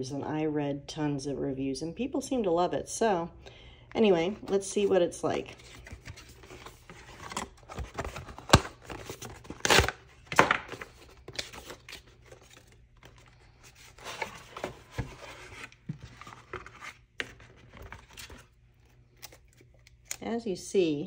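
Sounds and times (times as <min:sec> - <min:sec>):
packaging rustling and scraping: 0:04.3 - 0:20.1.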